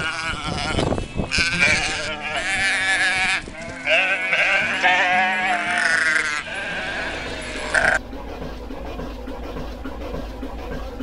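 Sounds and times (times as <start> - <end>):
sheep and goats bleating: 0.0 - 8.0
low machine rumble: 6.4 - 11.0.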